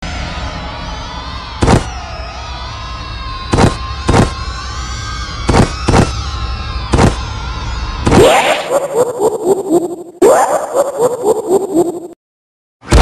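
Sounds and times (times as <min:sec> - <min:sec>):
sharp impact hits: 0:00.0 - 0:02.2, 0:03.5 - 0:04.4, 0:05.4 - 0:06.2, 0:06.9 - 0:07.2.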